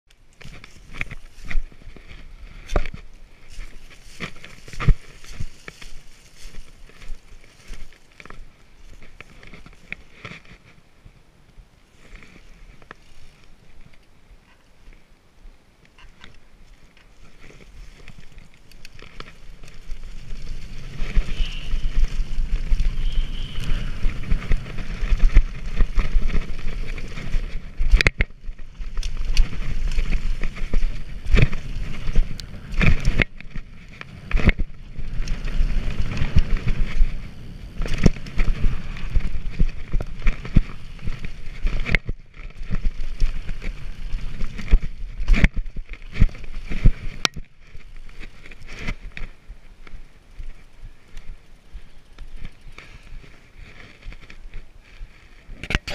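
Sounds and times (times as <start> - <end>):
bike knocking and rattling: 0.1 - 10.8, 11.5 - 15.0, 15.8 - 55.9
wind on microphone: 17.4 - 55.9.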